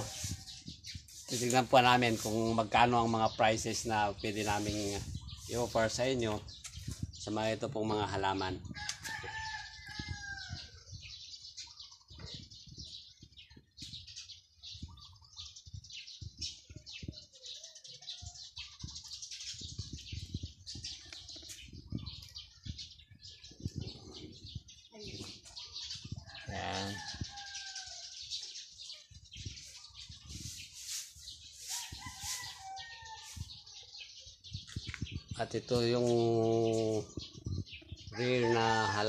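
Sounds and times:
birds chirping: 0:00.0 - 0:39.0
rooster crowing: 0:38.2 - 0:39.0.

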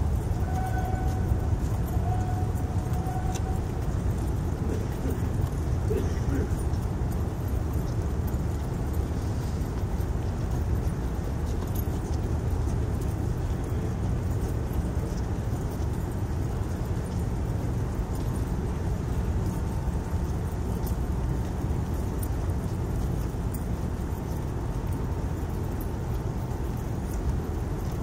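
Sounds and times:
footsteps marching on pavement: 0:00.0 - 0:28.0
steady low rumble: 0:00.0 - 0:28.0.

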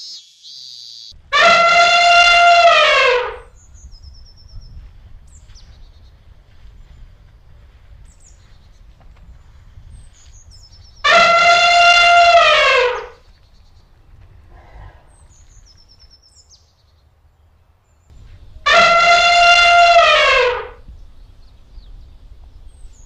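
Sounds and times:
elephant trumpeting: 0:01.3 - 0:03.5, 0:11.0 - 0:13.2, 0:18.6 - 0:20.8
low background rumble: 0:17.3 - 0:23.0.

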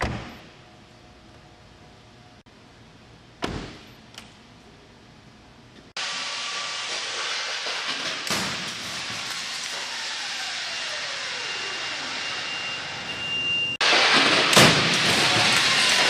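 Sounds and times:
car crashing into barrier: 0:13.8 - 0:16.0.

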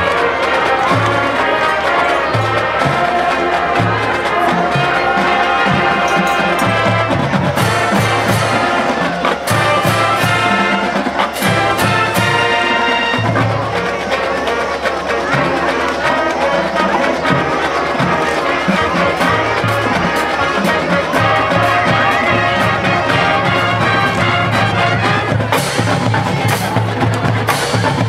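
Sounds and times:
marching band playing: 0:00.0 - 0:28.0
drum and cymbal hits: 0:14.7 - 0:28.0.

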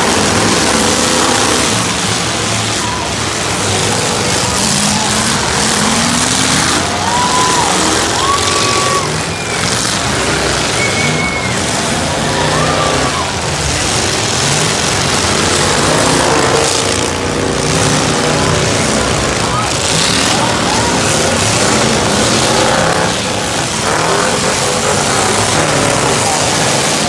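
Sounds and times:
crowd noise: 0:00.0 - 0:27.0
truck engines revving: 0:00.0 - 0:27.0.

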